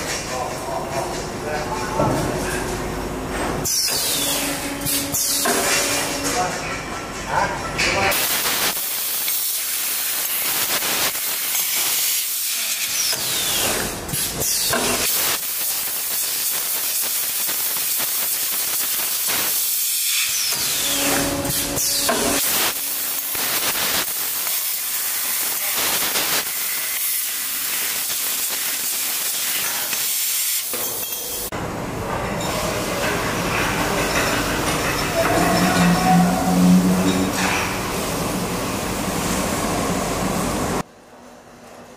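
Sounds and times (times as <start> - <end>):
laser cutter gas jet hissing: 8.1 - 31.1.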